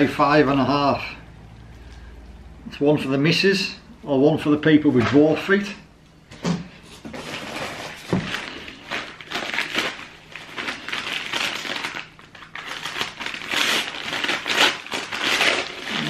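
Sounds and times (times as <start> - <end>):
paper wrapping crinkling: 7.0 - 16.0.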